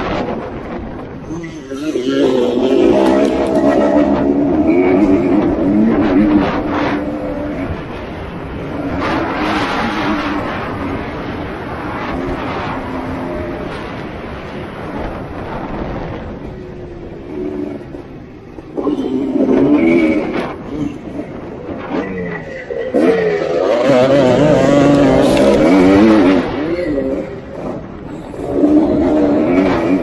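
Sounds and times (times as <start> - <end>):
motorbike engine revving: 0.0 - 30.0.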